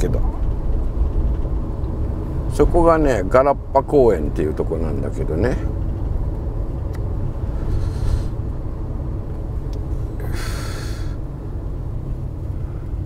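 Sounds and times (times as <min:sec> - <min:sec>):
van engine rumble from inside: 0:00.0 - 0:13.0
short hisses: 0:07.5 - 0:08.4, 0:10.2 - 0:11.2.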